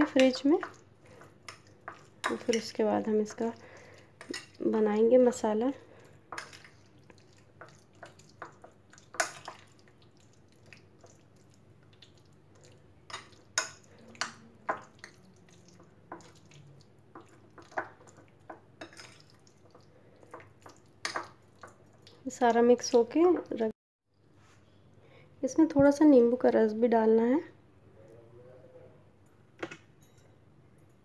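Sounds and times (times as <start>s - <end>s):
wet marinade mixing: 0.0s - 23.7s.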